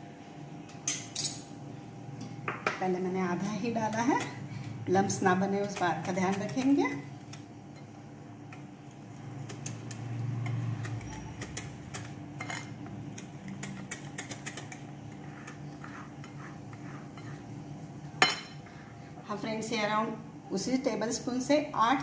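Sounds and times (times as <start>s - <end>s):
whisk scraping glass bowl: 13.6s - 17.6s.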